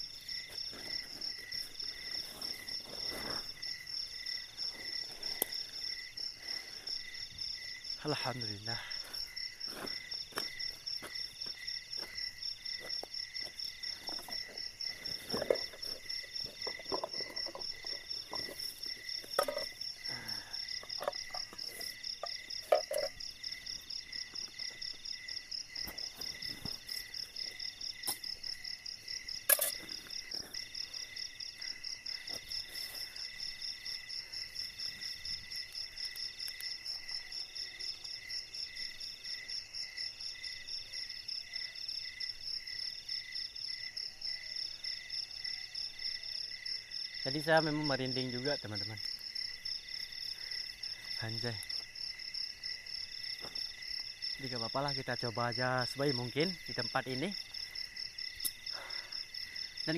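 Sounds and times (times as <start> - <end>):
night insects trilling: 0.0 - 59.9
camping gear knocks and rustles: 9.7 - 20.1, 20.7 - 23.4, 25.7 - 31.2.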